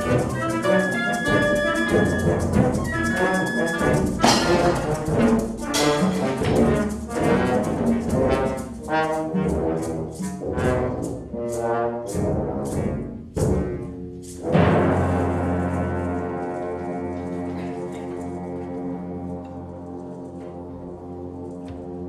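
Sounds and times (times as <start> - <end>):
concert wind band playing: 0.0 - 22.0
loud full-band hit: 4.2 - 6.8.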